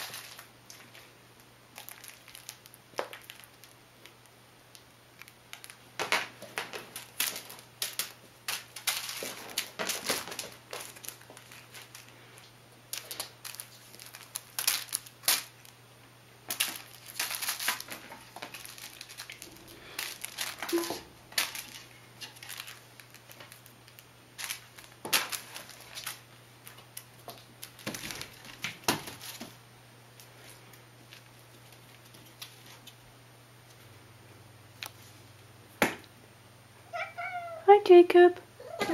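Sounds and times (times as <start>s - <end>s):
kitten rustling with a toy: 0.0s - 1.1s, 1.8s - 3.8s, 6.4s - 15.8s, 16.4s - 29.6s, 30.2s - 33.0s.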